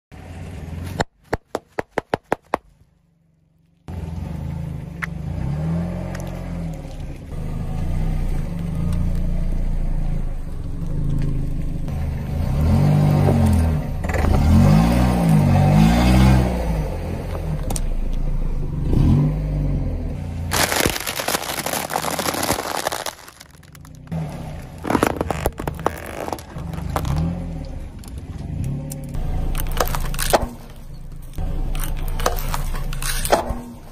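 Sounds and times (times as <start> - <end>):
sharp cracks: 1.0 - 2.7, 20.5 - 24.2, 24.8 - 27.3, 29.6 - 30.8
car engine revving: 3.9 - 33.8
objects being crushed and scraping: 20.5 - 24.2, 24.8 - 27.3, 31.8 - 33.7.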